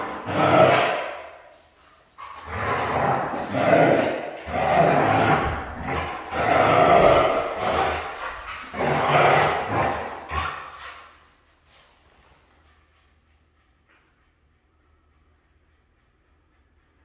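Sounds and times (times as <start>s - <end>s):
dog howling roughly: 2.4s - 10.7s.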